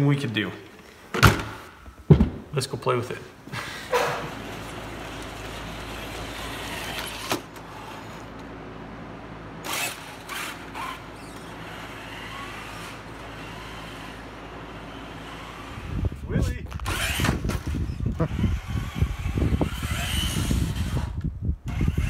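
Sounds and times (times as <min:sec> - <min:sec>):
rc car motor whine: 0:04.1 - 0:08.6, 0:09.6 - 0:22.0.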